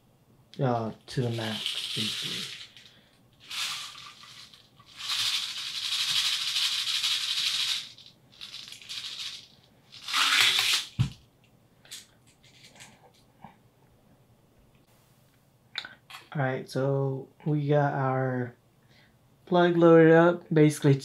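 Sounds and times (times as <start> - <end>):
bbs rattling into plastic lure: 1.2 - 11.0.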